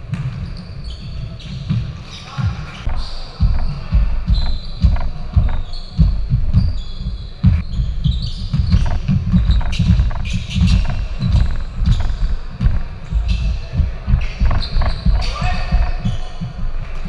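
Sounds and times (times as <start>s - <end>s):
sneaker squeaks: 0.0s - 16.6s
basketball bouncing: 3.4s - 16.7s.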